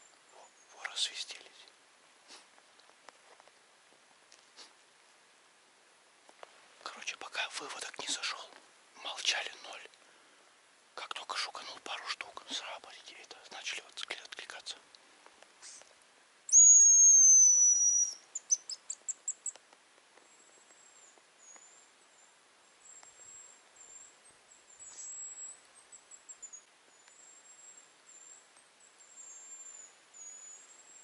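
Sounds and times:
decoy whistle: 16.5s - 18.7s
birds whistling: 16.5s - 19.6s, 24.7s - 31.0s.

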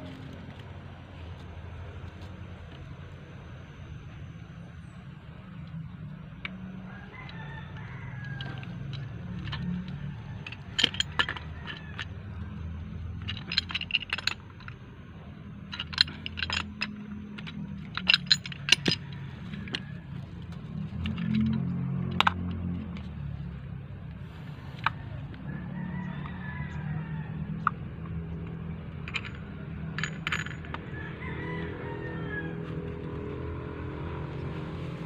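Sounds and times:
steady low hum: 0.0s - 25.7s.

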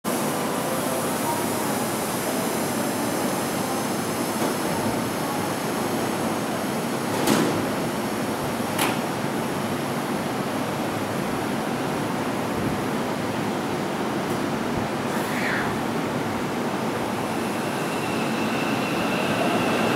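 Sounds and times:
electric train hum: 0.1s - 19.9s.

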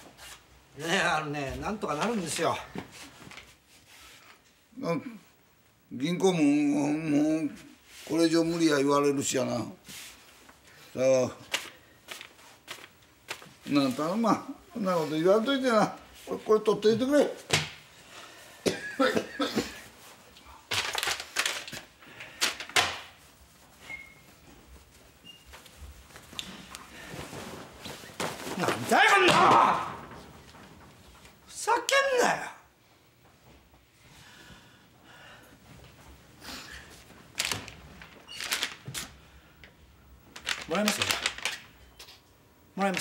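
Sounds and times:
rustle of clothing or paper: 9.8s - 16.6s, 23.1s - 29.2s
man breathing sharply: 34.1s - 35.6s.

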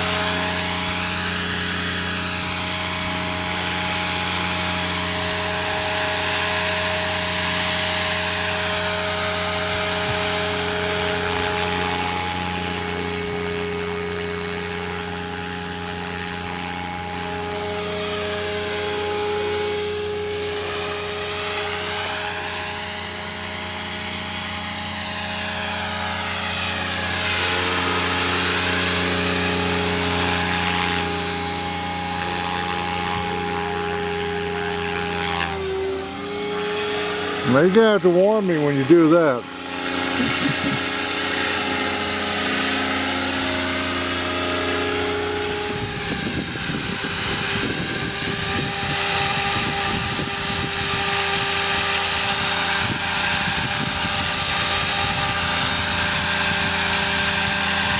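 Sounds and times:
model helicopter motor whine: 0.0s - 57.9s
rotor blades rushing: 0.0s - 57.9s.

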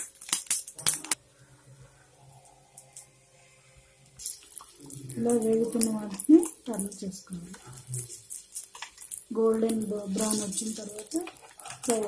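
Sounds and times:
oil spattering and crackling: 0.0s - 1.2s, 4.2s - 12.0s.

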